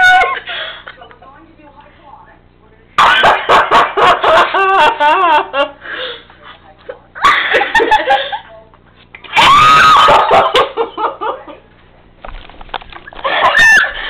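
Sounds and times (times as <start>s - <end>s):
women laughing: 0.0s - 1.1s, 3.0s - 8.6s, 9.5s - 11.7s, 13.1s - 14.0s.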